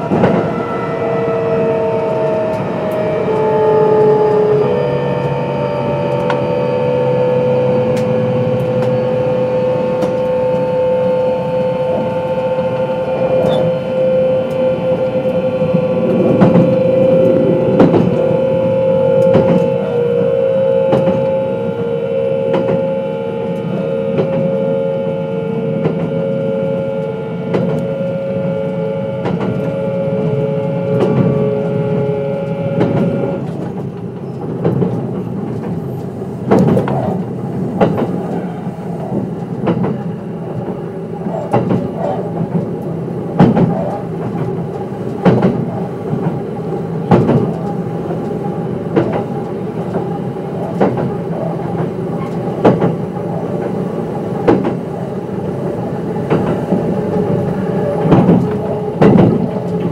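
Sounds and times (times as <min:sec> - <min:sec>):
train motor whine: 0:00.0 - 0:59.9
wheel rumble: 0:31.0 - 0:59.9
wheels clacking over rail joints: 0:32.5 - 0:59.9.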